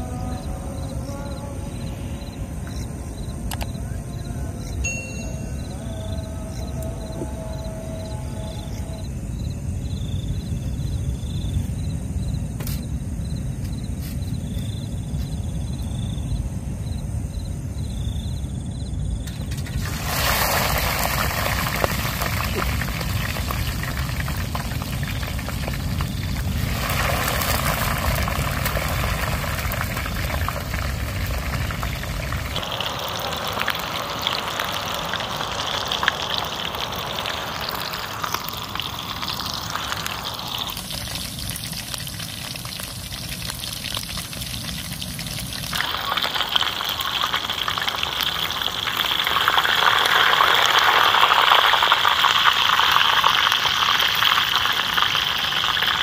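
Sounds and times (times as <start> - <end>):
food sizzling in oil: 19.3 - 56.0.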